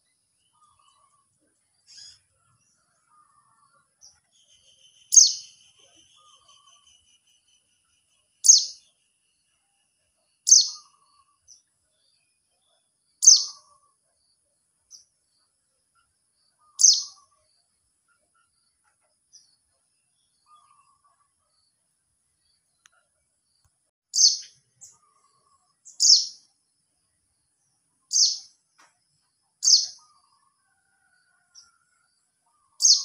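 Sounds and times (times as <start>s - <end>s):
bird sharp high calls: 10.5s - 11.4s, 13.2s - 13.9s, 16.6s - 17.3s, 32.5s - 33.0s.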